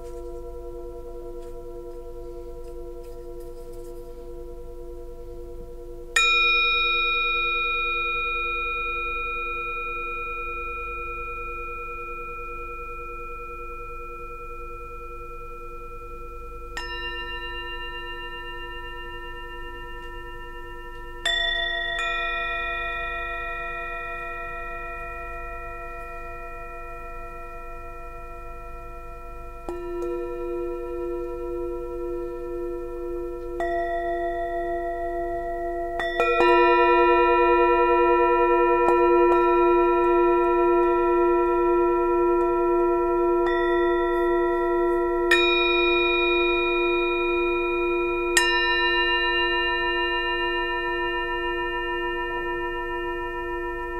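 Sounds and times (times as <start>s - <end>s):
low pulsing hum: 0.0s - 48.4s
singing bowls struck and ringing: 0.0s - 53.9s.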